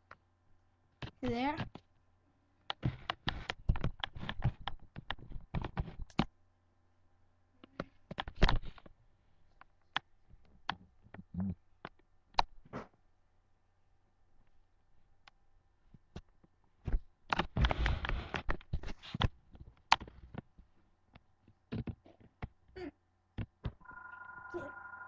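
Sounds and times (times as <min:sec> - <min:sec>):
clicks and taps: 0:02.7 - 0:06.3.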